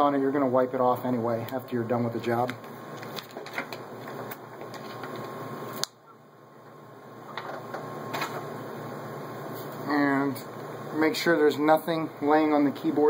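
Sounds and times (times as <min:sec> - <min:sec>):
steady low hum: 0:00.0 - 0:13.0
plastic film peeling: 0:02.9 - 0:06.0.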